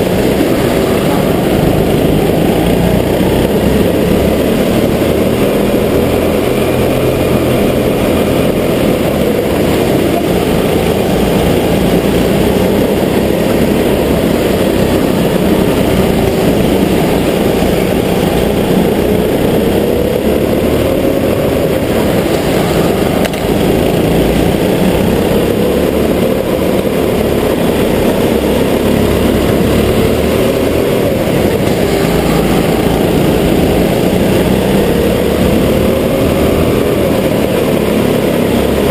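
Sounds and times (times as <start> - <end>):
go-kart engine running: 0.0 - 38.9.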